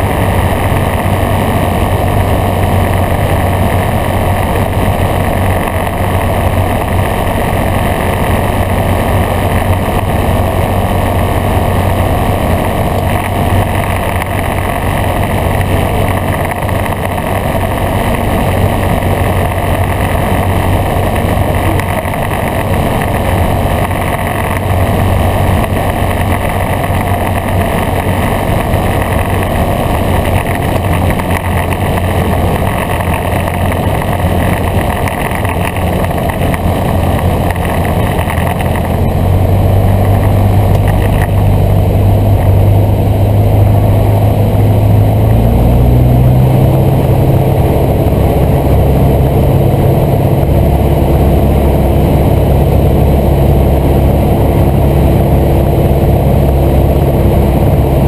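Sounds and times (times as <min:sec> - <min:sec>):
aircraft engine drone: 0:00.0 - 0:58.0
airflow noise: 0:00.0 - 0:58.0.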